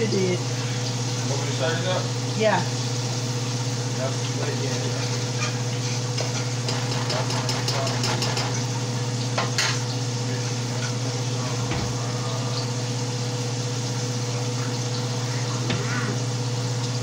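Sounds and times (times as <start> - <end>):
metal spoon scraping a pot: 5.4 - 8.6.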